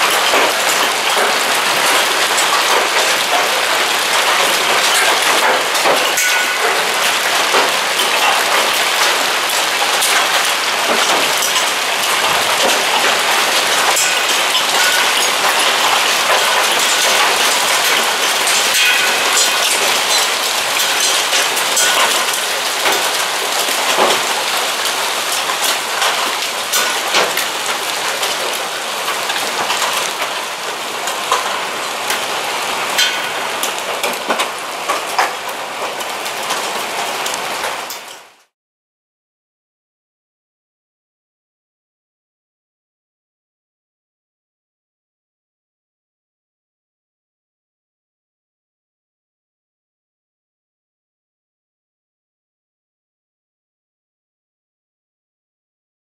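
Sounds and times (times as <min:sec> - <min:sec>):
hailstones pelting down: 0:00.0 - 0:38.4.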